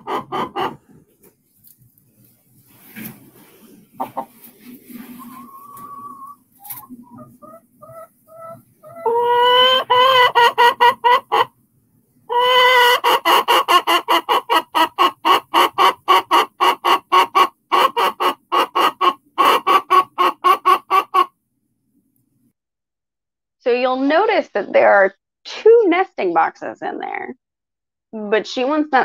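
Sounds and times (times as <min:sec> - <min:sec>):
hen squawking and clucking: 0:00.0 - 0:01.0, 0:03.9 - 0:11.5, 0:12.3 - 0:21.3.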